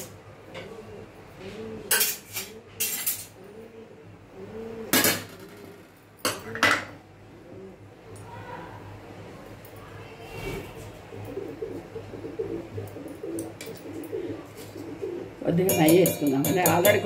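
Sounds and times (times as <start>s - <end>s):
metal bowl clanking and scraping: 1.8s - 3.4s, 14.6s - 17.0s.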